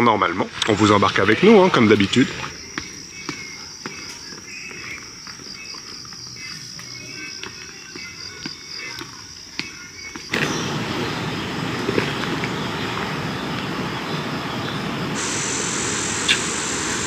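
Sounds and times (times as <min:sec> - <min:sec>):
high steady hiss: 0:00.0 - 0:03.3, 0:10.3 - 0:17.0
insects chirping: 0:00.0 - 0:17.0
flowing water rushing: 0:10.4 - 0:17.0.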